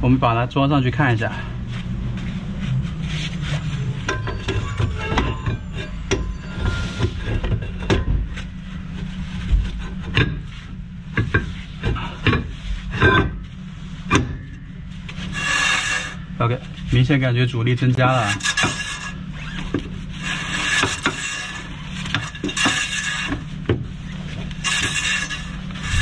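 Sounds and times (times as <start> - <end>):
metal scraping: 2.2 - 10.8, 12.5 - 17.2, 17.9 - 26.0.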